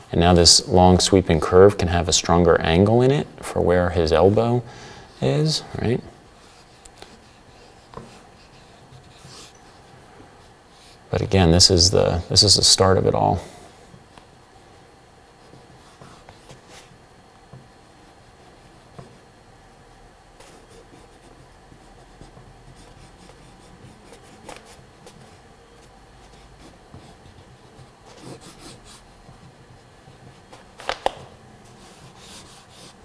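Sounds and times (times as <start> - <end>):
charcoal scratching on paper: 6.4 - 11.0, 20.4 - 30.4, 31.7 - 33.0.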